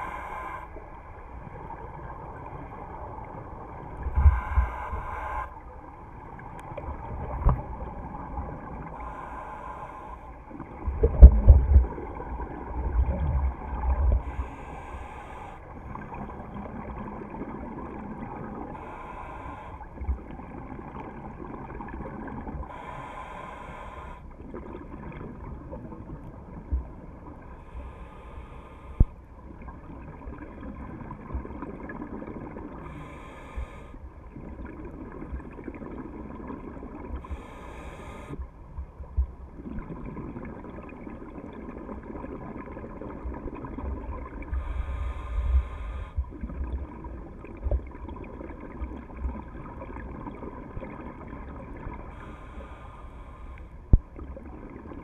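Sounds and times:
regulator breathing hiss: 0:00.0 - 0:00.8, 0:04.2 - 0:05.6, 0:09.0 - 0:10.3, 0:14.2 - 0:15.6, 0:18.8 - 0:19.9, 0:22.7 - 0:24.2, 0:27.6 - 0:29.1, 0:32.8 - 0:34.0, 0:37.3 - 0:38.4, 0:44.6 - 0:46.2, 0:52.1 - 0:53.7
exhaled air bubbling: 0:06.2 - 0:55.0.

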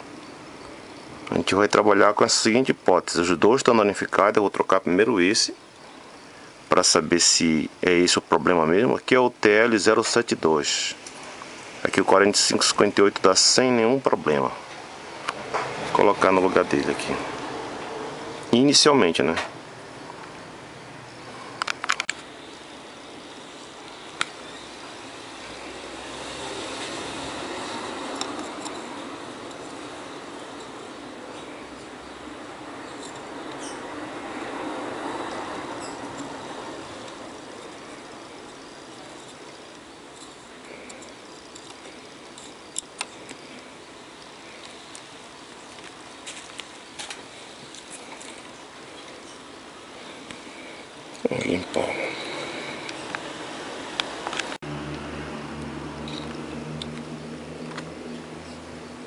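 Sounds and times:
low room hiss: 0:00.0 - 0:59.0
rushing background noise: 0:14.1 - 0:59.0
sharp clicks of tools handled: 0:21.6 - 0:22.2
small tools clicking: 0:26.8 - 0:31.9, 0:32.9 - 0:33.8, 0:38.4 - 0:49.4.

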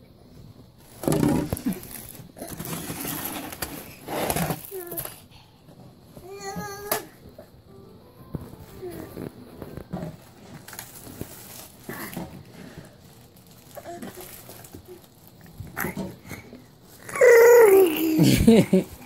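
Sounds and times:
babies babbling: 0:17.1 - 0:18.2.

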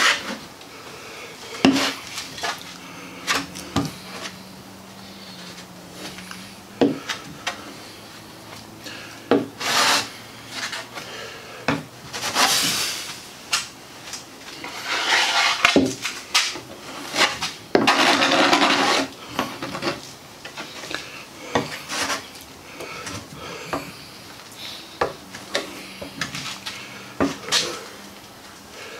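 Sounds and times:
hand-sanding rasping strokes: 0:09.3 - 0:11.0, 0:14.6 - 0:16.1, 0:16.8 - 0:19.9.

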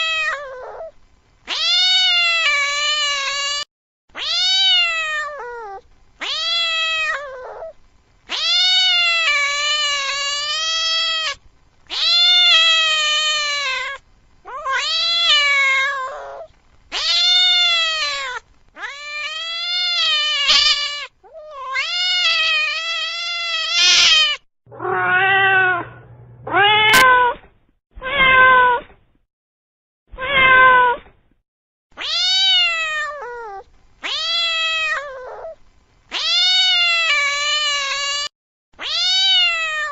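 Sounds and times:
cat meowing: 0:00.0 - 0:00.9, 0:01.5 - 0:03.6, 0:04.2 - 0:07.7, 0:08.3 - 0:27.4, 0:28.0 - 0:28.8, 0:30.1 - 0:31.0, 0:32.0 - 0:39.9
low hum: 0:24.7 - 0:27.0.

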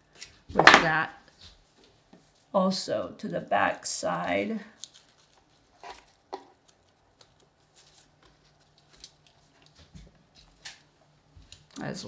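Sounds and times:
rustling of leaves and stems: 0:04.2 - 0:10.6.

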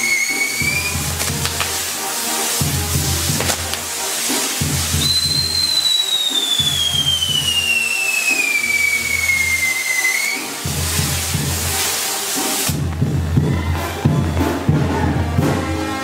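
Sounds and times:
firework whistle falling in pitch: 0:00.0 - 0:02.5, 0:03.4 - 0:12.0
hiss of burning pyrotechnics: 0:00.0 - 0:13.4.

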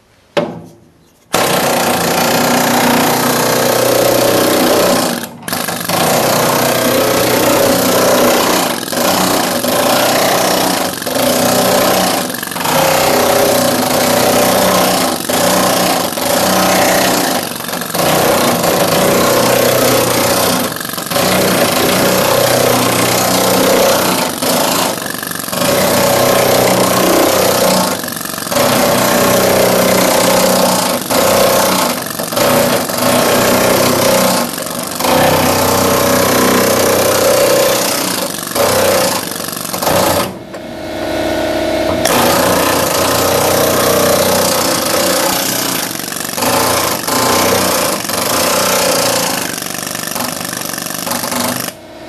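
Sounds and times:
pneumatic air hammer chattering on metal: 0:01.2 - 0:40.5, 0:41.9 - 0:51.8.

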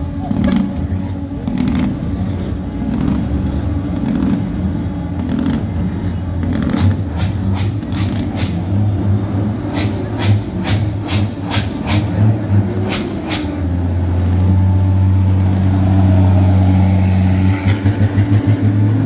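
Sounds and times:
diesel truck engines drone: 0:00.0 - 0:19.0.

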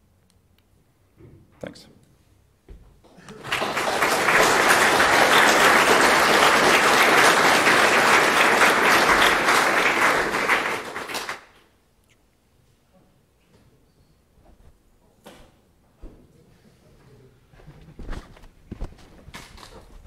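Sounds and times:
audience applauding: 0:03.2 - 0:11.6.

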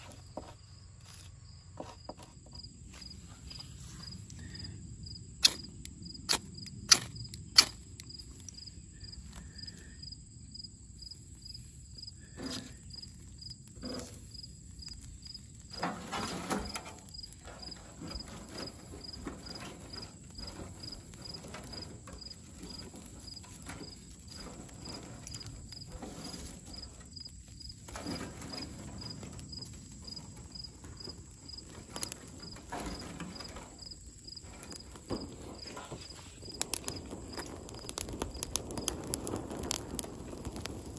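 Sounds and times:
twigs rustling and crackling: 0:00.0 - 0:01.8, 0:05.4 - 0:10.0, 0:10.9 - 0:40.9
ferro rod scraping: 0:12.2 - 0:14.4, 0:15.7 - 0:27.2, 0:27.8 - 0:40.9.

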